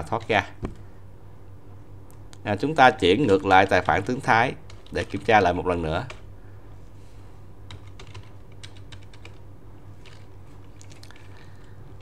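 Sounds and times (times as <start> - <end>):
low steady hum: 0.0 - 12.0
keyboard keystrokes: 7.7 - 9.4.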